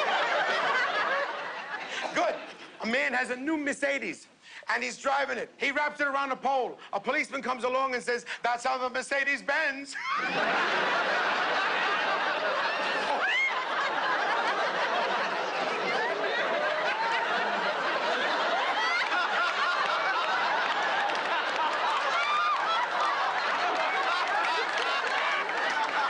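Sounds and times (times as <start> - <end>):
audience laughing: 0.0 - 2.8, 10.0 - 26.0.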